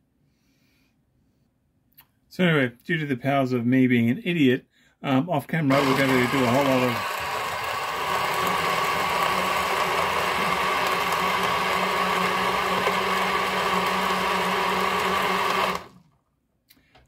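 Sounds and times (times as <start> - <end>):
blender motor running: 5.7 - 16.2.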